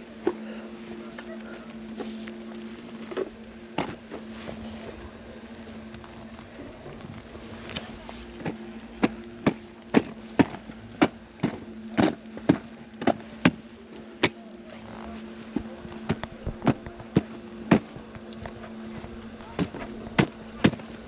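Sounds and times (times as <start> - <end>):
steady low hum: 0.0 - 21.0
ski boots knocking on packed snow: 8.4 - 13.6.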